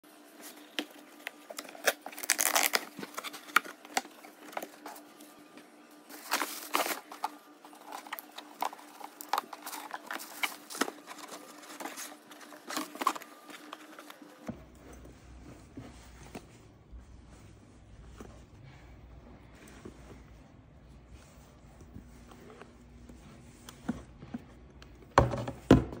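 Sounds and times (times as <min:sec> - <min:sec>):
cardboard and tissue paper crinkling: 0:00.2 - 0:05.5, 0:06.1 - 0:18.4.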